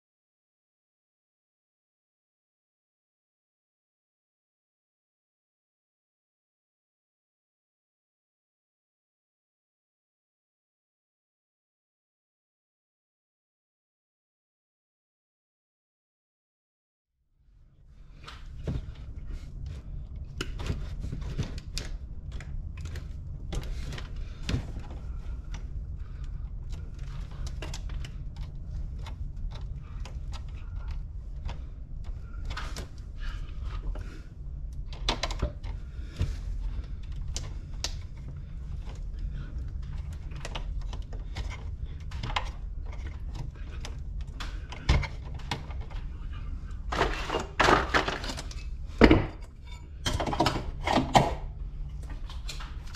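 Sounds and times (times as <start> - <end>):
steady low rumble: 17.4 - 52.9.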